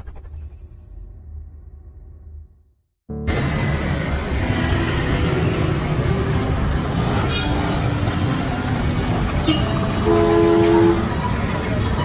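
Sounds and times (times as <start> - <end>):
road traffic: 3.1 - 12.0.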